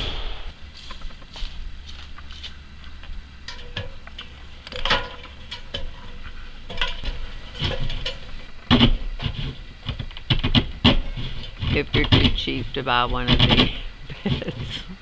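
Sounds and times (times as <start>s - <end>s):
hand tools clicking and knocking: 3.5s - 14.8s.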